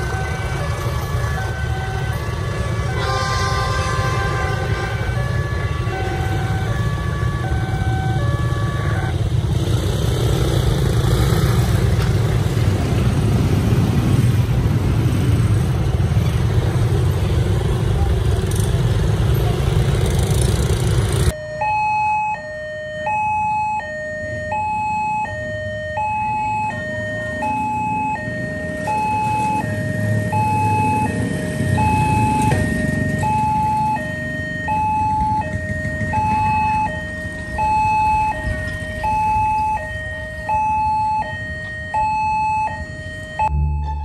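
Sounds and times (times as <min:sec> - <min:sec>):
two-tone electronic crossing alarm: 0:00.0 - 0:09.7, 0:21.3 - 0:44.0
level crossing warning: 0:00.0 - 0:18.5, 0:21.2 - 0:44.0
motorbike and car engines rumbling: 0:00.0 - 0:44.0.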